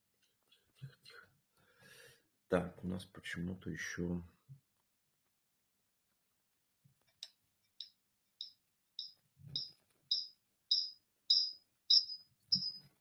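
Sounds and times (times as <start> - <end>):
high-pitched electronic beeps: 7.8 - 12.9.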